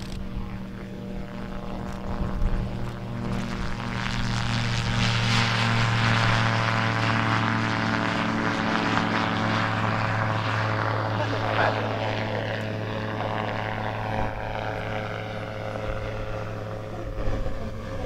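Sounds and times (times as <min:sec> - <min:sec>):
aircraft engine and propeller drone: 0:00.0 - 0:18.0.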